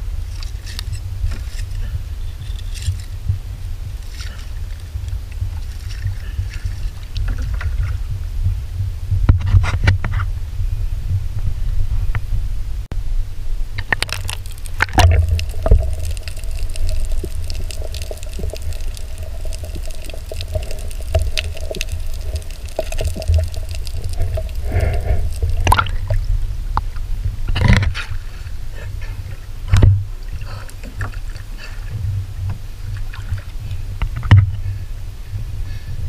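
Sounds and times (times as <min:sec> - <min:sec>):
muffled underwater rumble: 0:00.0 - 0:36.0
underwater knocks and clicks: 0:04.0 - 0:10.3, 0:13.8 - 0:26.9, 0:27.5 - 0:28.2, 0:32.1 - 0:34.6.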